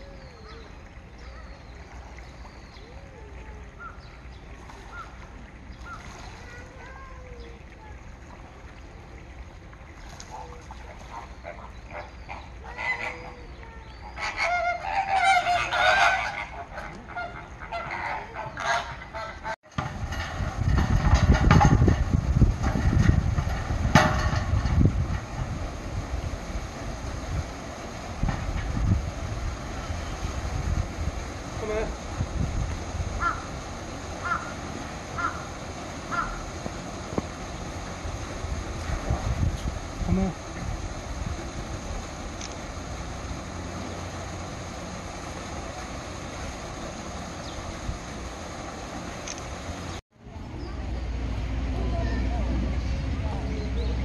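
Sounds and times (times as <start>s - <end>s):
low background rumble: 0.0s - 54.0s
flamingos calling: 4.8s - 5.2s, 10.2s - 19.6s, 32.8s - 38.3s.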